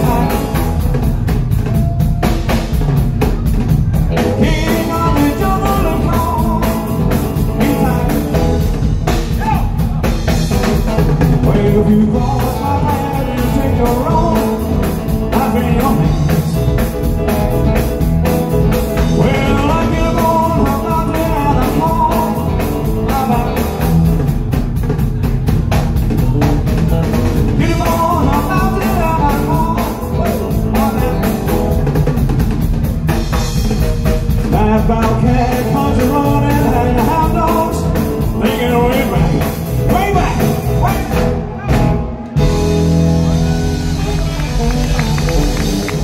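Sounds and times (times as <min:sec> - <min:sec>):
man singing: 0:00.0 - 0:02.1, 0:04.1 - 0:10.3, 0:10.9 - 0:17.4, 0:18.6 - 0:24.4, 0:27.1 - 0:31.9, 0:34.3 - 0:42.5
drum kit: 0:00.0 - 0:46.0
electric guitar: 0:00.0 - 0:46.0.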